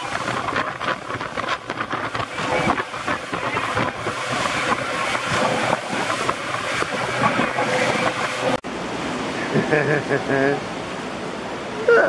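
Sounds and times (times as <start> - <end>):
hull knocking on waves: 0.0 - 8.6
motorboat engine: 0.0 - 12.0
water splashing along hull: 0.0 - 12.0.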